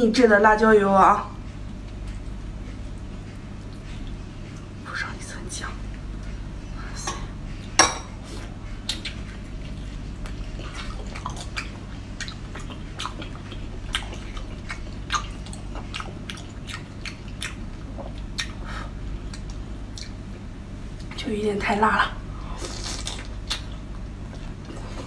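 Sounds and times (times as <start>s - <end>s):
low steady hum: 0.0s - 25.0s
chewing: 1.5s - 5.0s, 7.5s - 20.3s, 22.6s - 25.0s.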